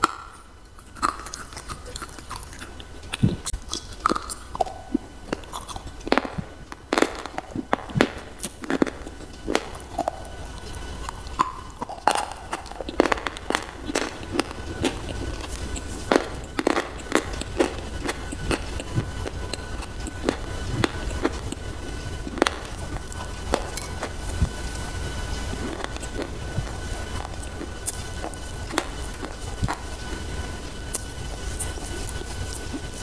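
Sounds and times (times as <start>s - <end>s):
crunching and chewing: 0.0s - 33.0s.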